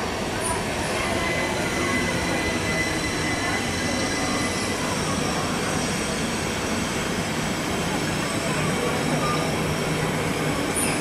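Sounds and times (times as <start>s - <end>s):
train rumbling past: 0.0s - 11.0s.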